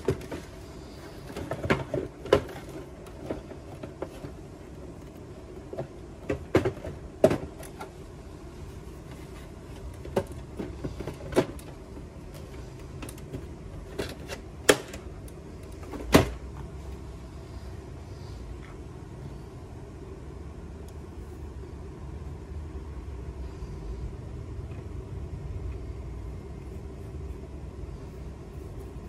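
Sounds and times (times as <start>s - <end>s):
low background noise: 0.0s - 29.0s
plastic clicks and knocks on printer: 5.6s - 7.9s.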